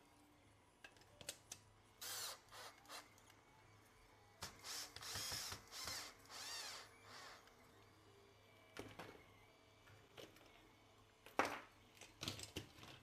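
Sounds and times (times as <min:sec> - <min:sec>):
cordless drill motor whining: 0:02.0 - 0:03.0, 0:04.4 - 0:07.9.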